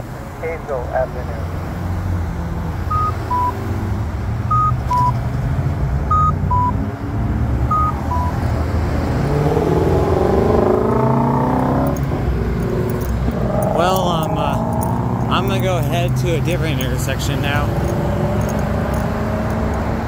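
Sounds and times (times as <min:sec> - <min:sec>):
car engines accelerating: 0:00.0 - 0:20.0
traffic rumble: 0:00.0 - 0:20.0
two-tone electronic beep: 0:02.9 - 0:03.6, 0:04.5 - 0:05.2, 0:06.1 - 0:06.8, 0:07.7 - 0:08.4.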